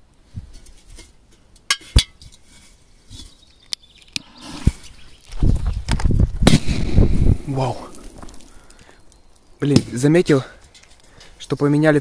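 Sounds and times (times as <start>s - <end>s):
firecracker bang: 6.4s - 8.5s.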